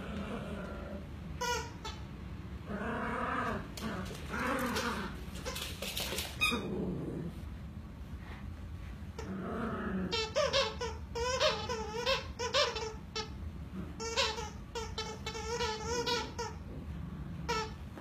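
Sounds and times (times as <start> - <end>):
squeaky dog toys squeaking: 1.4 - 2.0, 10.1 - 13.4, 14.0 - 16.6.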